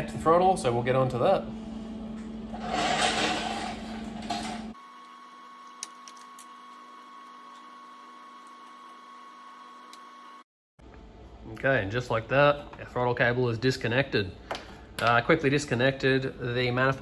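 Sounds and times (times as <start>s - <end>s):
steady low hum: 0.0s - 4.8s.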